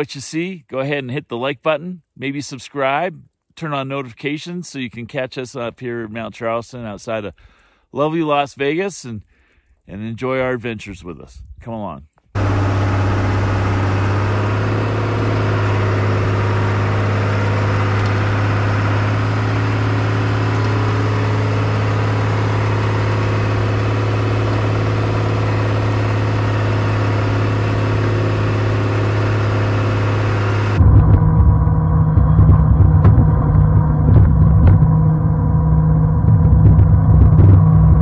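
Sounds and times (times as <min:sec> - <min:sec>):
deep engine rumble: 0:12.4 - 0:38.0
snowcat engine running: 0:12.4 - 0:38.0.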